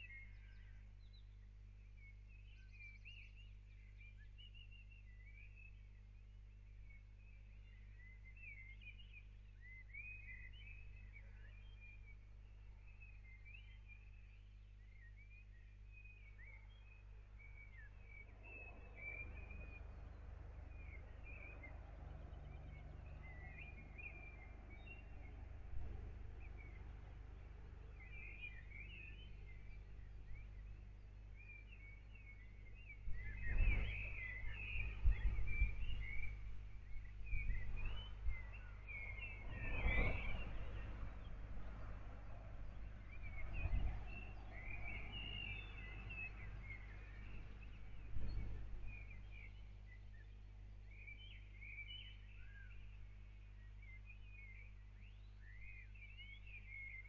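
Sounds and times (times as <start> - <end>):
faint birds chirping: 0.0 - 57.0
low steady background rumble: 0.0 - 57.0.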